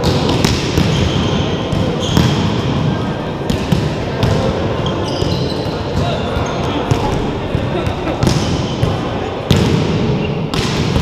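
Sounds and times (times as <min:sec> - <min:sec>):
volleyball slaps echoing: 0:00.0 - 0:11.0
shoes squeaking on gym floor: 0:04.8 - 0:06.8.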